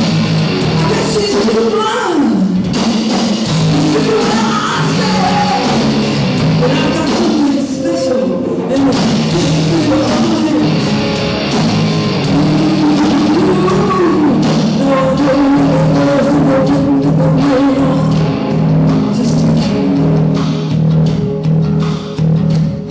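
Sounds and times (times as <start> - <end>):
bass guitar: 0.0 - 22.9
drums: 0.0 - 22.9
electric guitar: 0.0 - 22.9
woman singing: 0.8 - 2.4, 3.8 - 5.8, 6.6 - 10.8, 12.5 - 18.2, 19.1 - 19.8.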